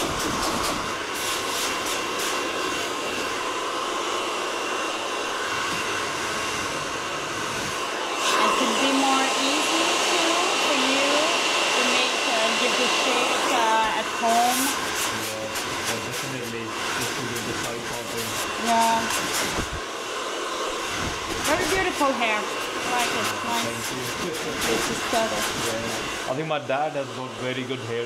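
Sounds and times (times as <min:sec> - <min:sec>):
hair dryer blowing: 0:00.0 - 0:28.0.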